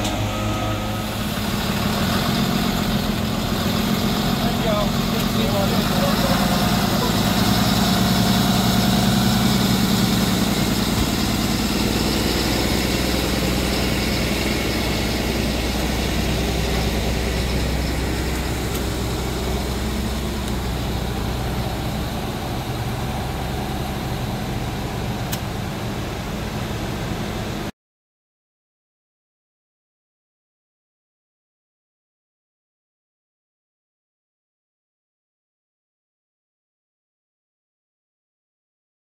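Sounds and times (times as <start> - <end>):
diesel engine idling: 0.0 - 27.7.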